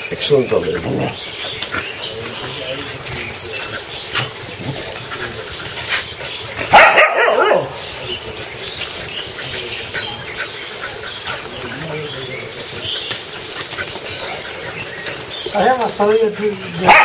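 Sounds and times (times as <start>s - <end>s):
dog barking: 6.6s - 7.8s, 16.8s - 17.0s.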